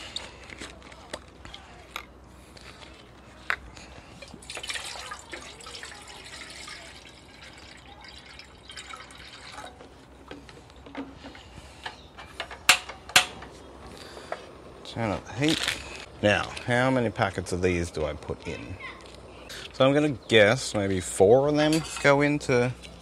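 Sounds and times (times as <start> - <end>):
water pouring into a pot: 4.4 - 9.8.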